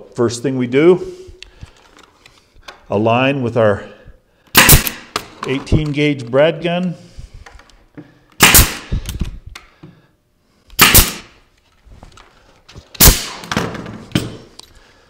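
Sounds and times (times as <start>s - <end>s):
tool handling clicks and knocks: 1.4s - 2.9s, 5.1s - 10.0s, 11.5s - 14.8s
nail gun firing: 4.5s - 5.4s, 8.4s - 9.2s, 10.8s - 11.4s, 13.0s - 14.3s.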